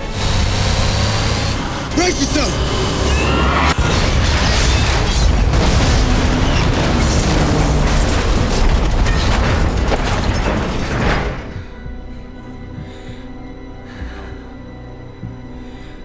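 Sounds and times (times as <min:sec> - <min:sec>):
heavy explosion blast: 0:03.8 - 0:11.5.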